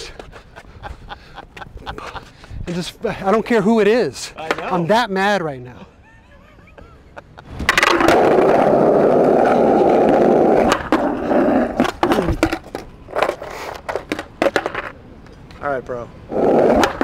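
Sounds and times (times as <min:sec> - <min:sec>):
skateboard wheels rolling on asphalt: 0:07.4 - 0:17.0
skateboard clacks and knocks: 0:07.6 - 0:15.0.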